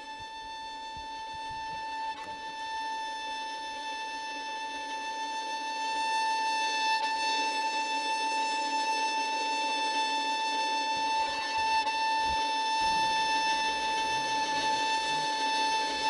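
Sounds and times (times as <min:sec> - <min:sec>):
violin holding a high note: 0:00.0 - 0:16.0.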